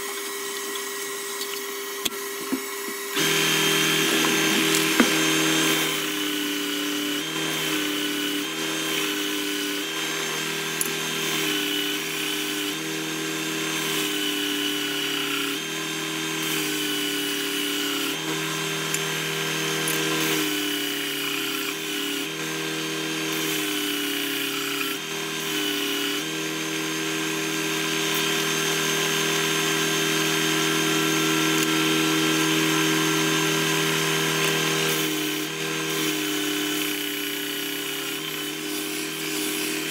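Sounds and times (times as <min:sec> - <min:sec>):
bench sander motor running: 0:00.0 - 0:39.9
wood sanding against disc: 0:32.6 - 0:39.9.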